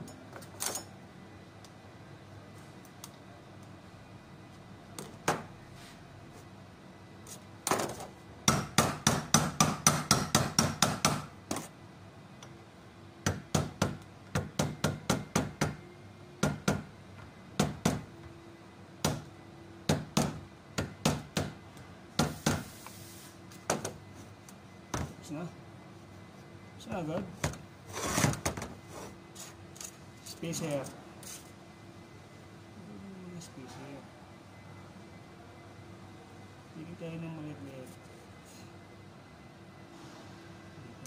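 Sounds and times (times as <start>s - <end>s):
hammer tapping metal: 8.5s - 11.3s.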